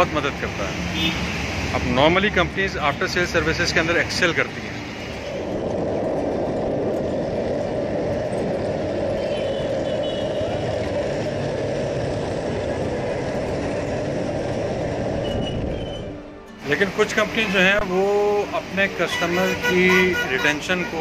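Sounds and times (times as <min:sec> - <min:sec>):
road wind noise: 0:00.0 - 0:21.0.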